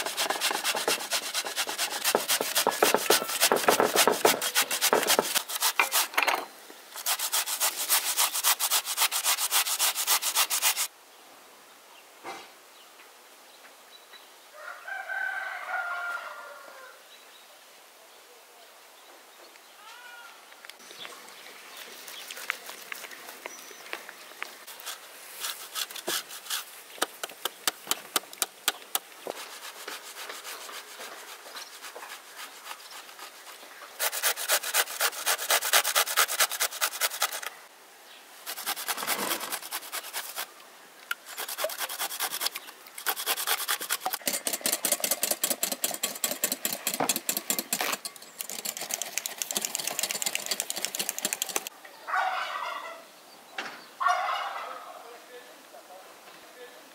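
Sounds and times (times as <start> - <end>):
grating on metal box grater: 0.0 - 6.1, 7.0 - 10.9, 34.0 - 37.5, 38.5 - 40.5, 41.2 - 51.7.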